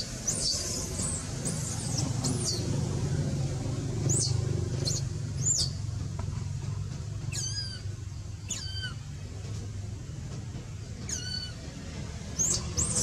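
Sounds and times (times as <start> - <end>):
steady low hum: 0.0 - 13.0
baby monkey crying: 7.3 - 9.0, 11.0 - 11.6.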